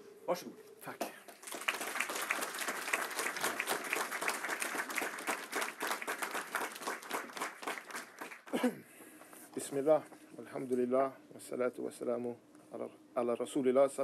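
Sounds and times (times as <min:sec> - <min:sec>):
audience applauding: 0:01.3 - 0:08.6.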